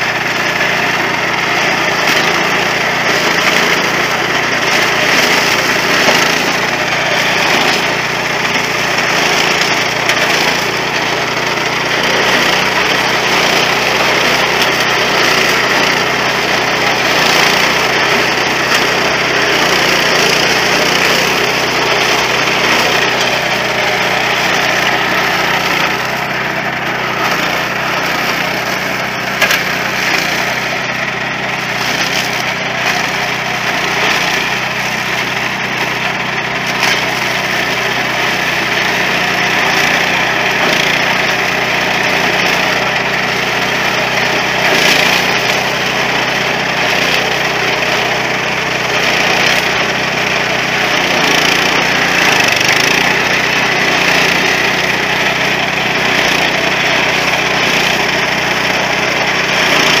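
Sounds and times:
small harvester engine running: 0.0s - 60.0s.

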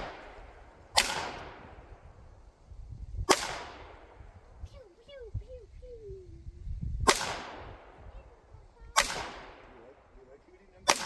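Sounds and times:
handgun shots with echo: 0.9s - 1.7s, 7.1s - 7.7s, 9.0s - 9.6s.

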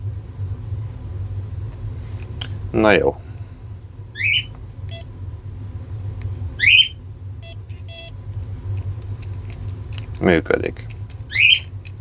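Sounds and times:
steady low hum: 0.0s - 12.0s
high downward-sweeping chirps: 4.2s - 4.5s, 6.6s - 8.1s
fingerprint reader beeping: 4.4s - 5.1s, 6.6s - 8.2s.

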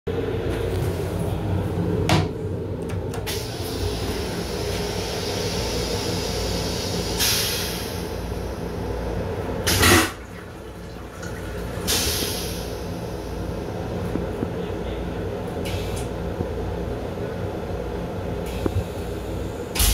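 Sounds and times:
train hum: 0.1s - 19.9s
toilet flush click: 9.6s - 10.5s, 11.1s - 12.7s
toilet flush whoosh: 9.6s - 13.4s.

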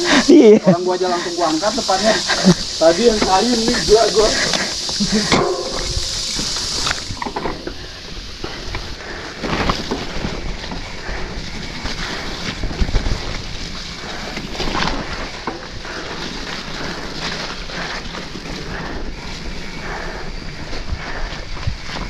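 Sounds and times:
wind buffeting microphone: 1.8s - 9.2s
bike tyres knocking on stones: 2.6s - 18.8s.

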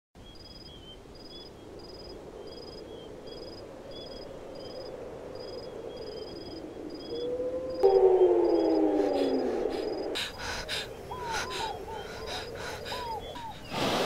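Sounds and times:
crickets chirping: 0.2s - 14.0s
low hum: 6.9s - 13.7s.

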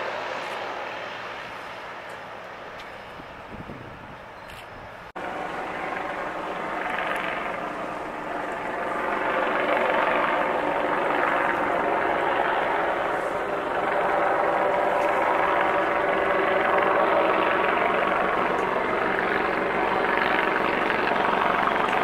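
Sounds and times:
helicopter engine and rotor: 4.2s - 22.0s.

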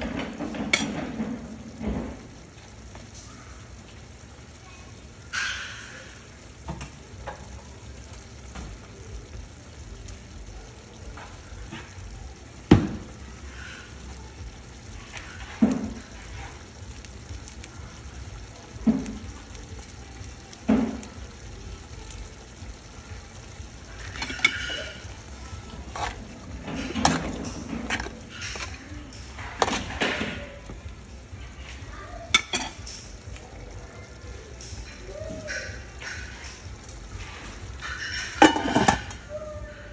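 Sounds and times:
spoon stirring and clattering: 0.0s - 1.4s, 24.0s - 30.4s, 32.3s - 33.1s, 37.2s - 39.2s
sauce simmering and sizzling: 0.0s - 39.9s.

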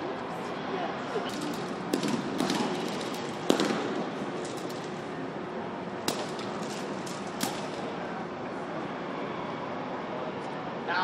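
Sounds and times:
indoor hall hiss: 0.0s - 11.0s
sharp cracks: 1.2s - 5.2s, 6.0s - 8.0s.

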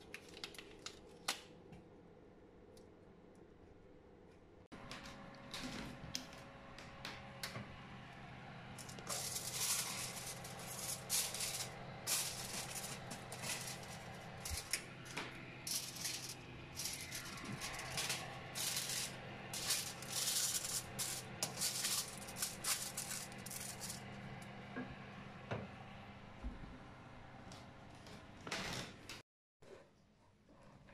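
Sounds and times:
oven humming: 4.8s - 29.2s.

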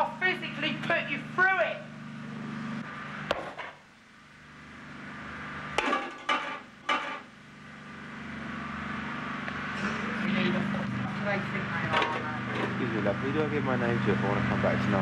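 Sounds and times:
steady low hum: 0.0s - 15.0s
pots and pans knocking: 5.8s - 7.2s.

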